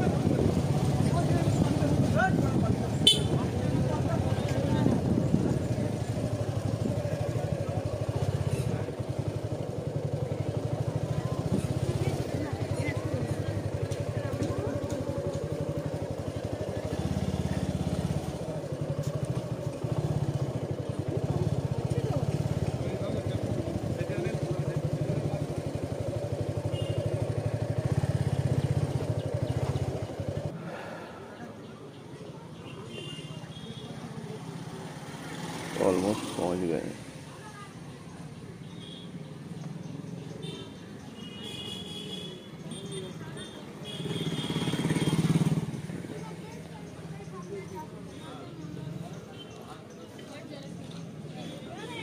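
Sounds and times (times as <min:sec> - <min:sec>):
motorcycle engine running: 0:00.0 - 0:30.6, 0:42.7 - 0:49.4.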